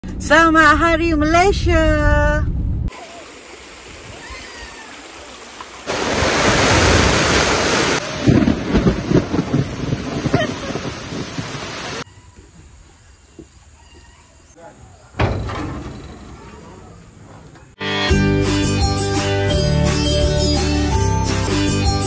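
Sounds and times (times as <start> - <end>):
river water rushing: 2.9 - 8.2
wind buffeting microphone: 6.1 - 12.7.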